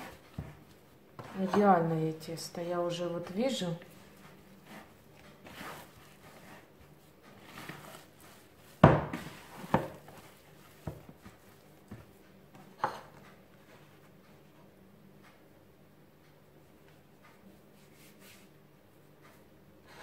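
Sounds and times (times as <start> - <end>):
dough squishing and rustling: 0.0 - 14.8, 16.4 - 19.7
dull thumps of dough pressed: 8.7 - 13.0.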